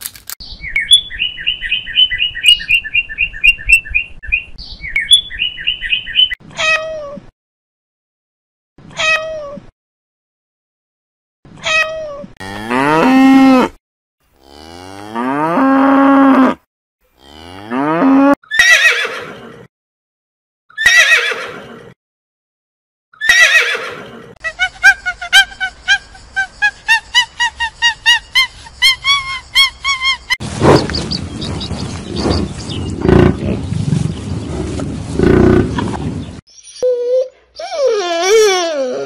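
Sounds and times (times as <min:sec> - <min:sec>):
horse whinnying: 0:18.5 - 0:19.6, 0:20.8 - 0:21.8, 0:23.2 - 0:24.2.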